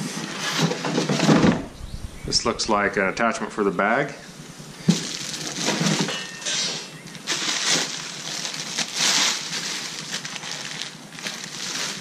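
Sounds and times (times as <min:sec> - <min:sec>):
plastic bag crinkling: 0:04.8 - 0:12.0.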